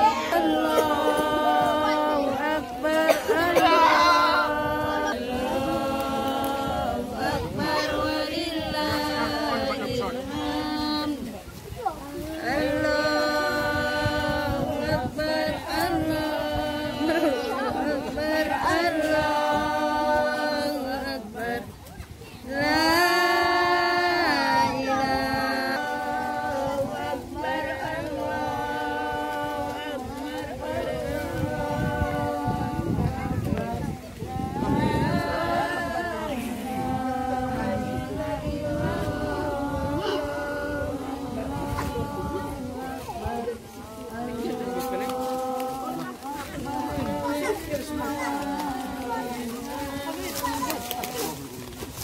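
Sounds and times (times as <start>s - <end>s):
voices singing together: 0.0s - 52.0s.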